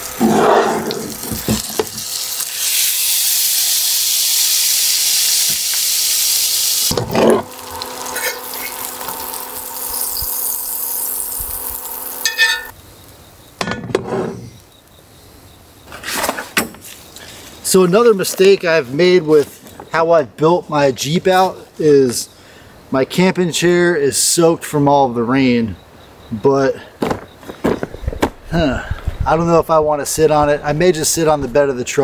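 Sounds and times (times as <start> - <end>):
food sizzling in a skillet: 0.0 - 12.7.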